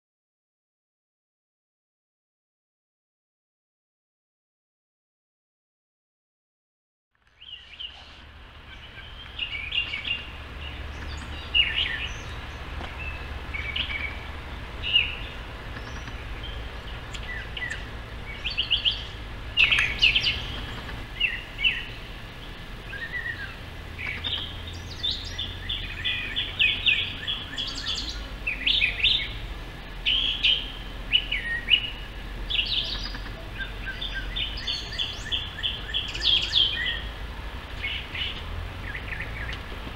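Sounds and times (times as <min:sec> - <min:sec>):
bird singing varied phrases: 0:07.3 - 0:37.2, 0:37.8 - 0:39.6.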